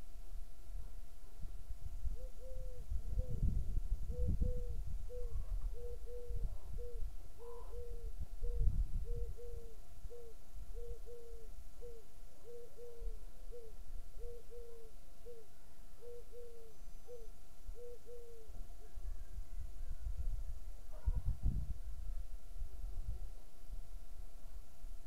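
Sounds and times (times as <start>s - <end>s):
wind rumble on microphone: 0.0s - 9.8s, 18.8s - 25.0s.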